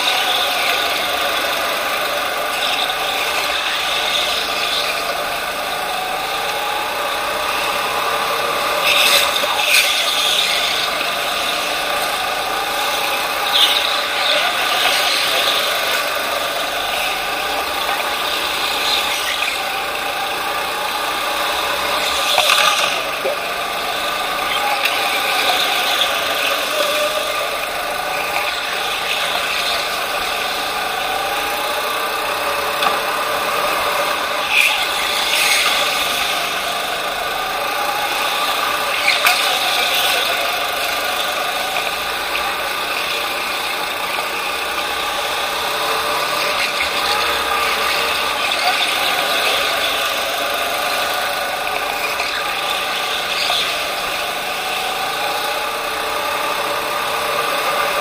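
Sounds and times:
go-kart motor whine: 0.0s - 58.0s.

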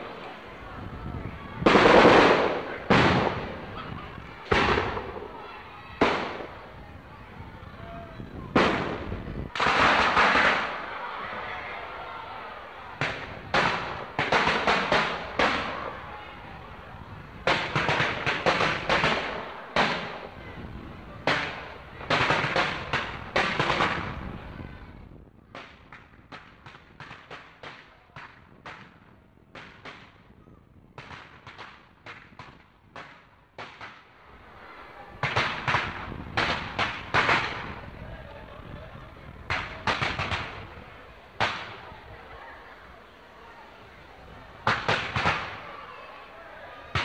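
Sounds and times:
fireworks pops: 21.2s - 24.2s, 25.5s - 30.3s, 30.9s - 34.1s, 35.2s - 38.5s, 39.4s - 42.0s, 44.6s - 45.8s.

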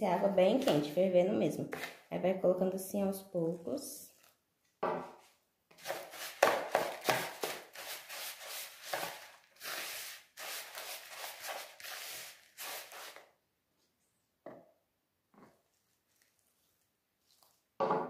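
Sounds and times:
spoon scraping starch in bowl: 5.8s - 13.2s.

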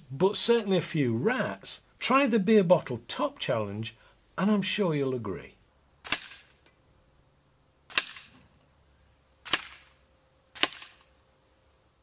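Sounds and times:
air pistol shots: 6.0s - 6.6s, 7.9s - 8.4s, 9.4s - 10.0s, 10.6s - 11.1s.

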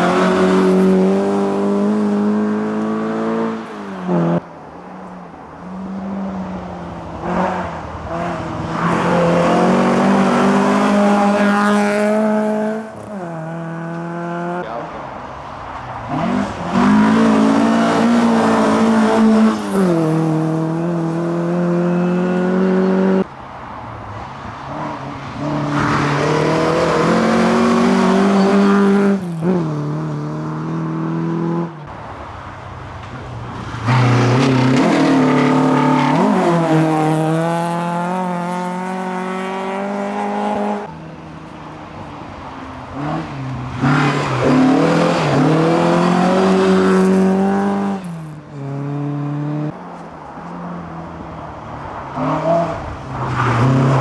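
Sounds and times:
rally car engines revving: 0.0s - 4.5s, 5.7s - 15.1s, 15.7s - 23.3s, 24.5s - 31.9s, 33.4s - 42.0s, 42.8s - 50.0s.

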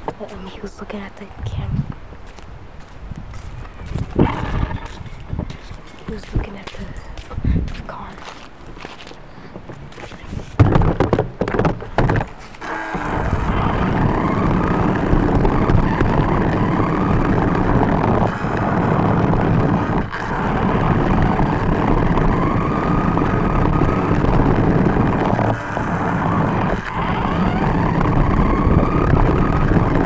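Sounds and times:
wheels rumbling on pavement: 0.0s - 30.0s
clunks and knocks: 10.5s - 12.4s
toy car motor whining: 12.6s - 30.0s.

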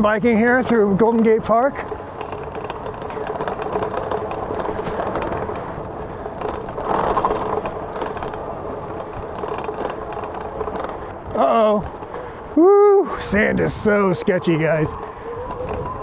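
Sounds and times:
tyres crunching on dirt: 0.0s - 12.6s
bike frame rattling: 0.0s - 16.0s.

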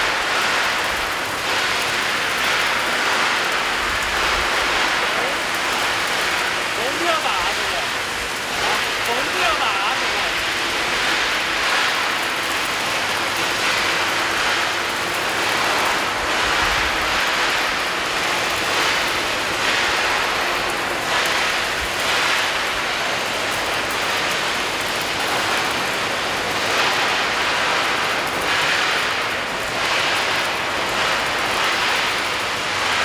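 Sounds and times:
welding arc crackling and hissing: 0.0s - 33.0s.

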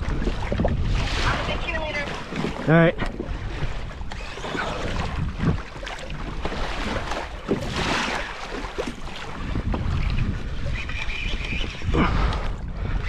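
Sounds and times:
water splashing along kayak hull: 0.0s - 13.0s
wind buffeting microphone: 0.0s - 13.0s.

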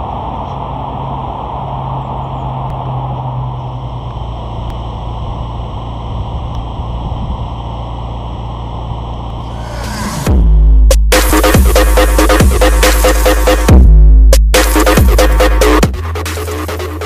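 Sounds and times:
diesel engine idling: 0.0s - 10.9s.

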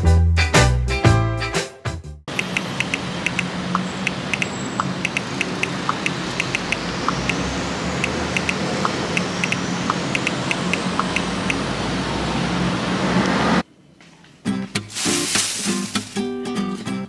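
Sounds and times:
distant traffic rumble: 2.3s - 14.4s.

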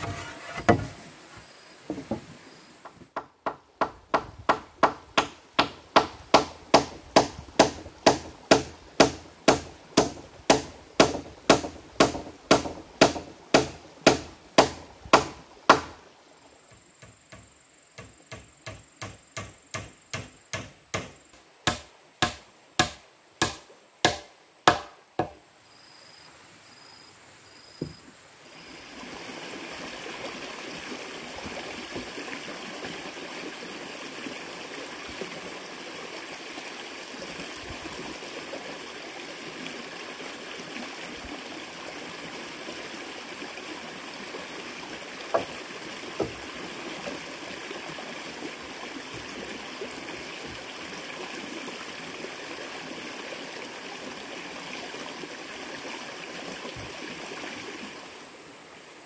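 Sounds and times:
hand tool striking wood: 0.0s - 1.0s, 1.9s - 16.0s, 16.7s - 25.4s, 45.3s - 45.6s, 46.2s - 46.4s.

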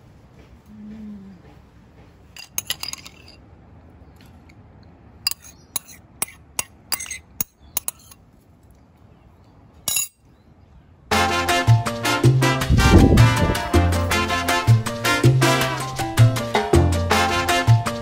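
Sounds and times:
spoon clinking against ceramic bowl: 5.3s - 8.2s, 9.9s - 10.2s.

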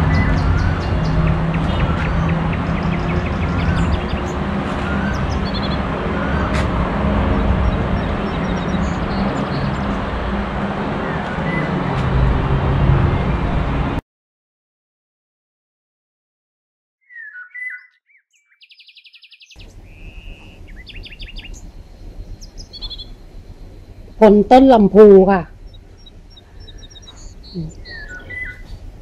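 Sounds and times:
small birds chirping: 0.0s - 6.7s, 7.3s - 10.2s, 17.0s - 29.0s
low rumble of road traffic: 0.0s - 14.0s, 18.9s - 29.0s.

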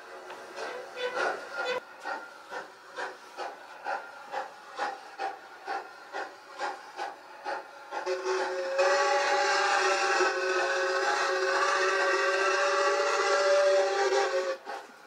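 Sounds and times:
steam locomotive exhaust chuffing: 0.0s - 15.0s
locomotive whistle: 8.0s - 14.8s.

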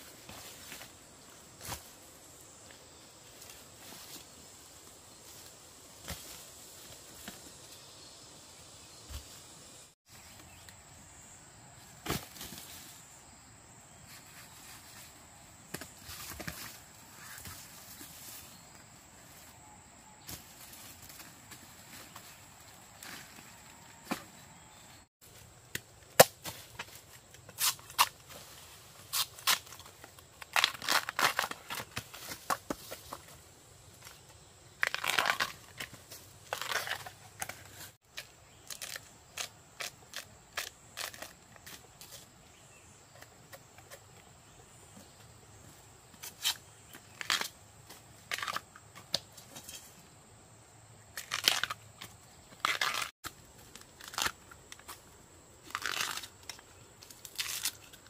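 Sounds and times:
crunching and tearing crackles: 29.1s - 32.1s, 34.8s - 37.6s, 51.2s - 51.9s, 52.6s - 55.0s, 55.6s - 58.0s.

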